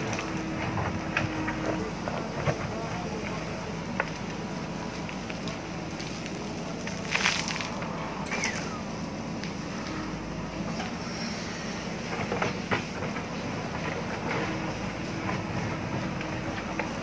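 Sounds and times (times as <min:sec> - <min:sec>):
diesel engine running under load: 0:00.0 - 0:17.0
bucket digging into soil and stones: 0:06.9 - 0:08.8.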